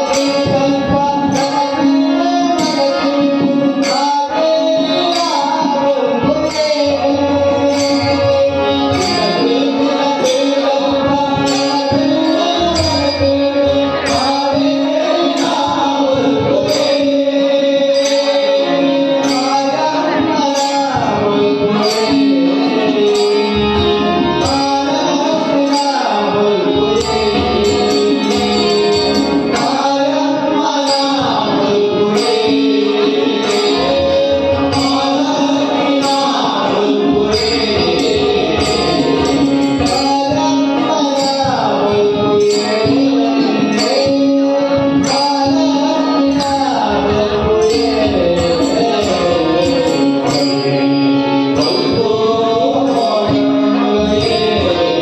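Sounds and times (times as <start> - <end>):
harmonium: 0.0 - 55.0
tabla beat: 0.0 - 55.0
voices singing: 0.0 - 55.0.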